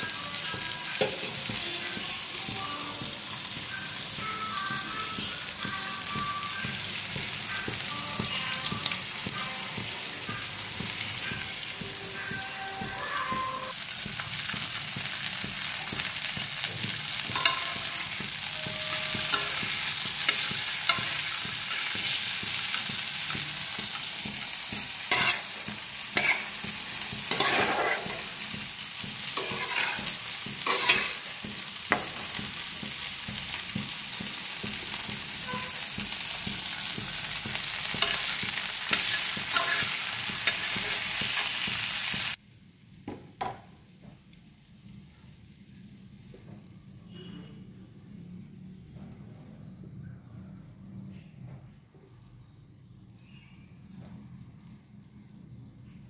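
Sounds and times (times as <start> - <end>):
food sizzling in oil: 0.0 - 42.4
metal spatula scraping pan: 25.1 - 26.6, 27.3 - 28.4, 29.3 - 31.3, 38.0 - 41.6.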